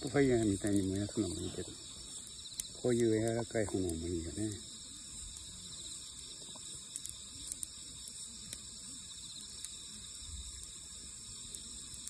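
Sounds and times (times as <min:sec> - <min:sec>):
night insects trilling: 0:00.0 - 0:12.0
wood fire crackling: 0:00.0 - 0:12.0.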